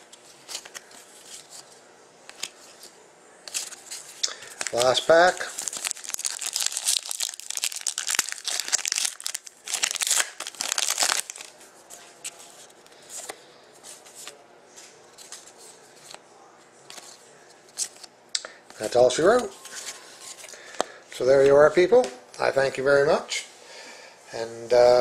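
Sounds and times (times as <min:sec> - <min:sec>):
cards clicking and rustling: 0:00.1 - 0:01.7, 0:02.3 - 0:02.8, 0:03.5 - 0:11.6
foil wrapper crinkling and tearing: 0:03.5 - 0:11.6.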